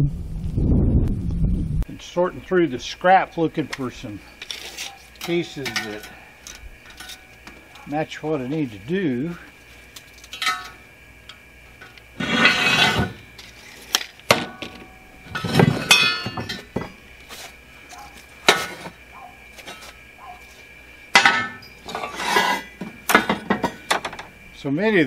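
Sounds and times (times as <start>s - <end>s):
steel tubing scraping: 11.8s - 14.0s, 21.2s - 22.8s.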